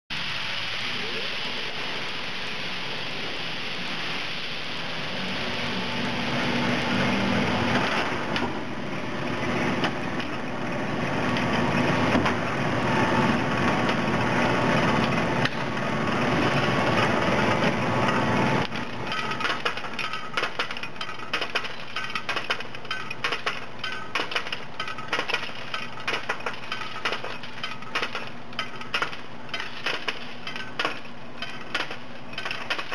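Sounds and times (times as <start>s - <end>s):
metallic clatter of machine: 9.5s - 32.9s.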